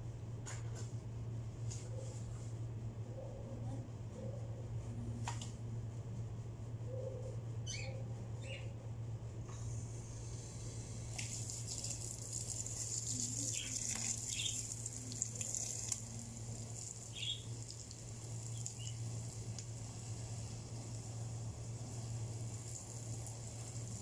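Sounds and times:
low hum: 0:00.0 - 0:24.0
garden hose spraying water: 0:10.2 - 0:24.0.

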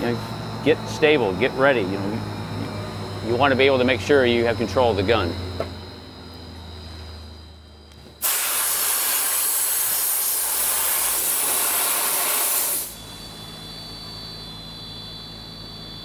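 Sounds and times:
dry ice blasting gun hissing: 0:08.2 - 0:13.1.

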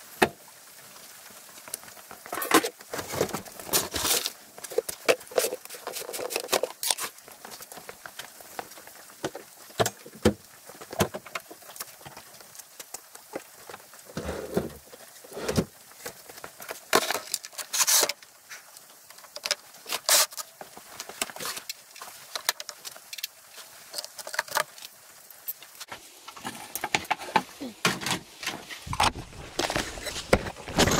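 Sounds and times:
plastic container and tools handled: 0:02.3 - 0:07.6, 0:13.7 - 0:18.4, 0:19.1 - 0:24.8, 0:26.3 - 0:30.9.

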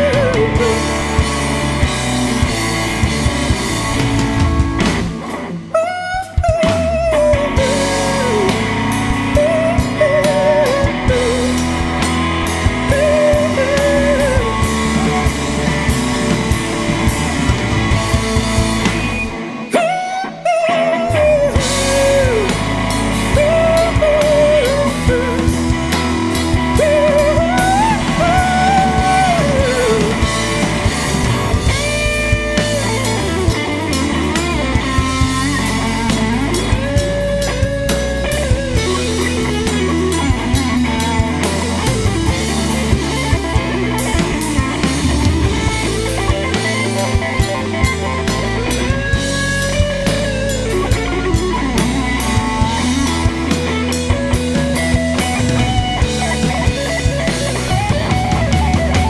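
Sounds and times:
blues-rock band playing: 0:00.0 - 0:59.0.

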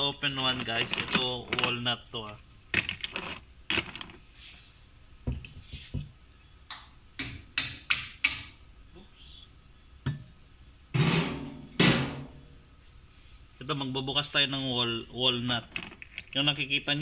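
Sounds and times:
plastic bag crinkling: 0:00.3 - 0:04.2.

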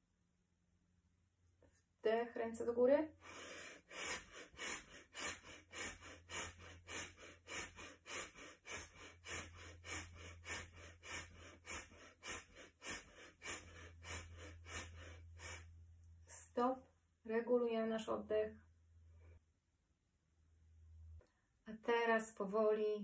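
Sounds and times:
woman breathing forcefully: 0:03.2 - 0:15.7.

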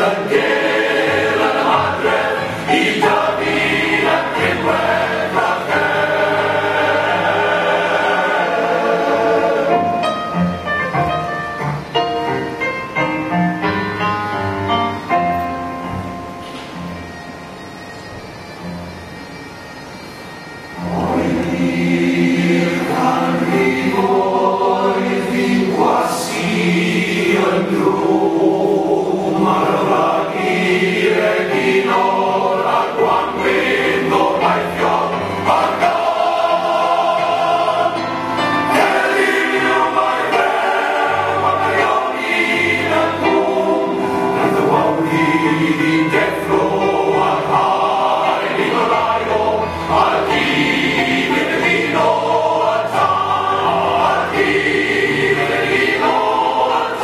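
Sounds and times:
male choir singing in harmony: 0:00.0 - 0:11.6, 0:20.7 - 0:57.0
piano accompaniment: 0:00.0 - 0:57.0.

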